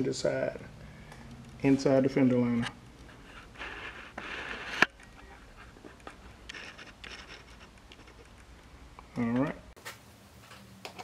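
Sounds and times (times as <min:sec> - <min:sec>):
low scrapes: 0:03.0 - 0:08.2.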